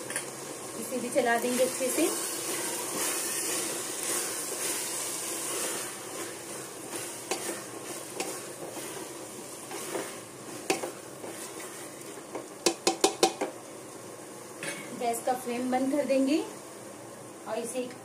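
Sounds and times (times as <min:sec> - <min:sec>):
mince sizzling: 0:00.0 - 0:18.0
spatula scraping a pot: 0:01.6 - 0:09.1
spatula knocking against pot: 0:12.3 - 0:13.5.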